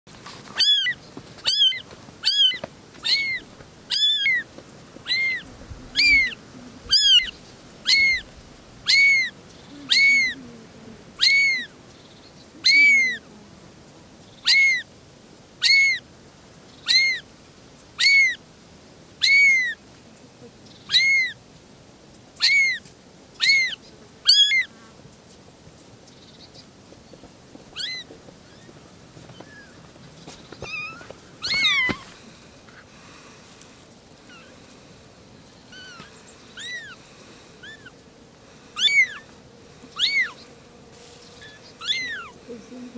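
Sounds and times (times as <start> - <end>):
kitten mewing: 0.6 - 4.4, 5.1 - 8.3, 8.9 - 10.5, 11.2 - 11.7, 12.6 - 13.2, 14.5 - 14.8, 15.6 - 16.0, 16.9 - 17.2, 18.0 - 18.4, 19.2 - 19.8, 20.9 - 21.4, 22.4 - 22.8, 23.4 - 24.7, 27.8 - 28.1, 30.6 - 32.2, 38.8 - 39.2, 40.0 - 40.4, 41.4 - 42.4.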